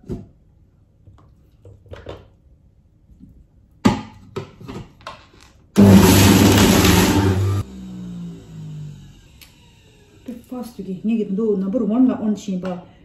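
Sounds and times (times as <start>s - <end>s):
juicer motor running: 5.8s - 10.4s.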